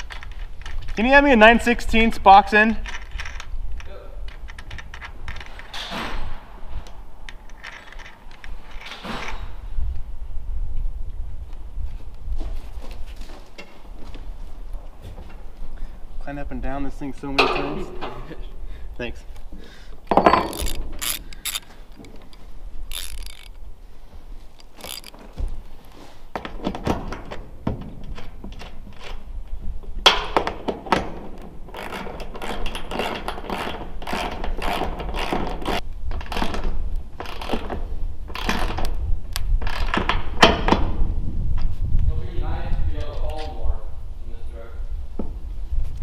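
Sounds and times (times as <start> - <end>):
wrench clicking on metal: 20.3 - 23.6, 24.6 - 25.2.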